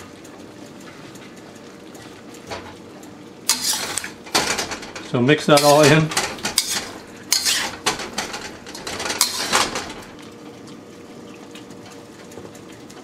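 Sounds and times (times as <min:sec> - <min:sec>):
utensil scraping metal pan: 0:03.5 - 0:04.8, 0:05.5 - 0:10.1.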